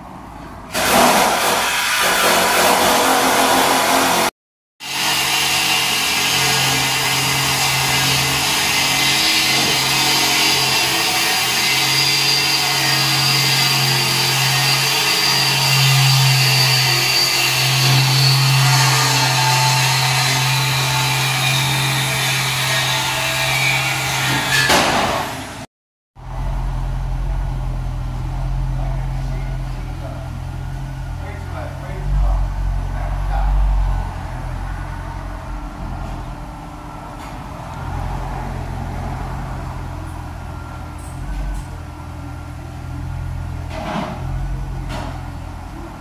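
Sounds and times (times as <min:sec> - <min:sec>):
power tool whining: 0:00.8 - 0:24.7.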